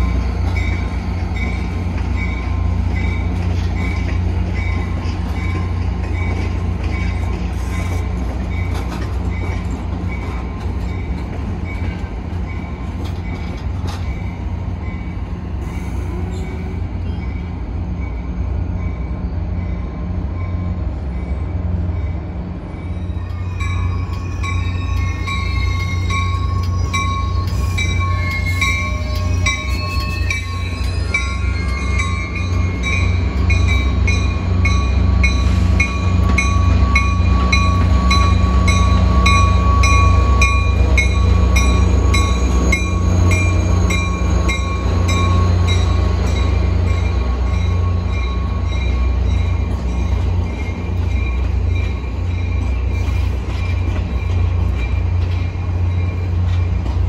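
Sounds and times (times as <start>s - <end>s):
train bell ringing: 0.0s - 15.3s, 16.1s - 56.9s
diesel locomotive rumble: 0.0s - 57.0s.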